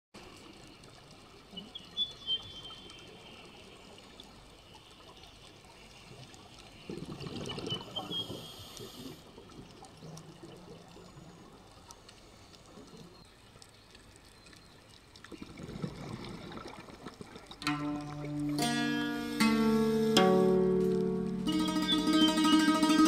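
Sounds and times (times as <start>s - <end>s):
faint clicks: 0.2s - 15.5s
exhaled bubbles gurgling: 6.4s - 11.8s, 15.1s - 18.6s
faint hiss: 7.8s - 10.2s, 18.6s - 22.4s
thin whistle: 21.5s - 23.0s.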